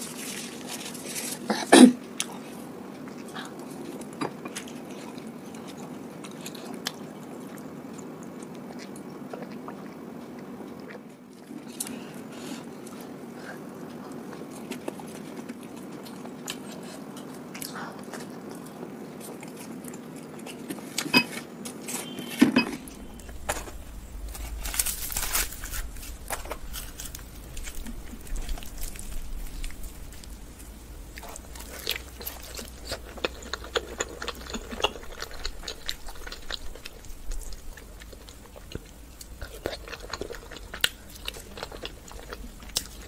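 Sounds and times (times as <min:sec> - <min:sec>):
chewing and wet mouth sounds: 0:00.0 - 0:43.0
low steady hum: 0:00.0 - 0:43.0
flatbread tearing and biting: 0:23.3 - 0:30.3.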